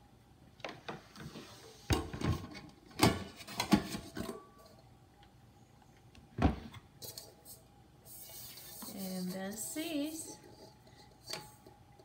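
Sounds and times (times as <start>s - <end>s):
inner pot knocking and scraping: 6.5s - 12.0s.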